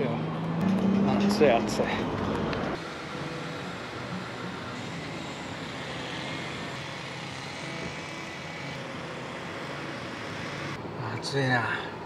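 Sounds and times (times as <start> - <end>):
road traffic noise: 0.0 - 12.0.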